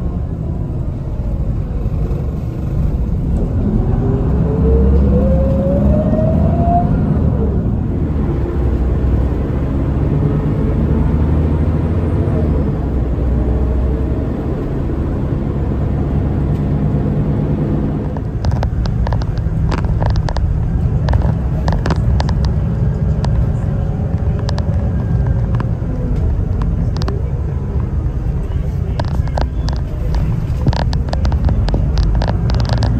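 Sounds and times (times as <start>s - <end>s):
bus engine rumbling: 0.0s - 32.9s
sharp clicks and rattles: 17.9s - 32.9s.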